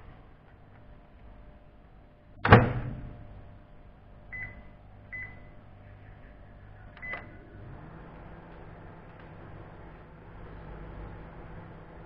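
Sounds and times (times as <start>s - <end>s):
microwave oven humming: 0.0s - 12.0s
microwave door slamming shut: 2.4s - 3.2s.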